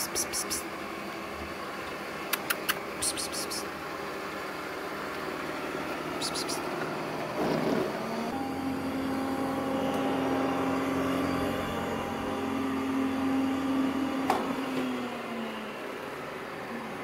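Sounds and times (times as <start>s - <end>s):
sharp click: 2.3s - 3.2s
robot vacuum motor hum: 4.2s - 16.0s.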